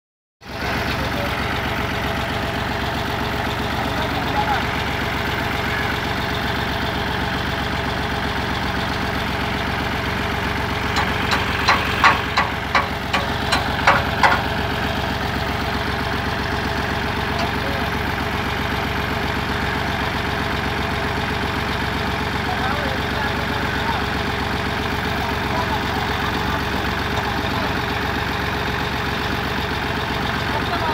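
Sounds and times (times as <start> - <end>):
tractor diesel idling: 0.4 - 30.9
sharp knocks: 11.0 - 14.6.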